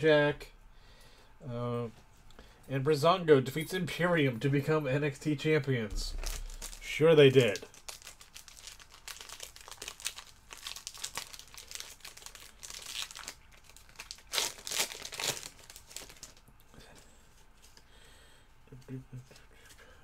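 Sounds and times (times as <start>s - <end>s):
card pack wrapper crinkling: 6.2s - 16.4s.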